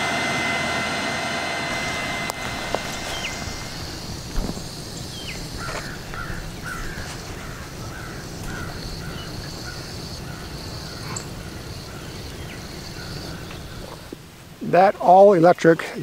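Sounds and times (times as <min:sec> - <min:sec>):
bird calling short notes: 0:01.7 - 0:14.1.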